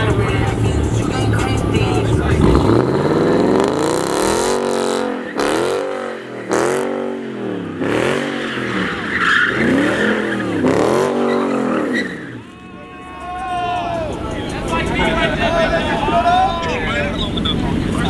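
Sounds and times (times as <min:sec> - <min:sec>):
car engine revving hard: 0:00.0 - 0:12.5
tyres spinning in a burnout: 0:00.0 - 0:18.0.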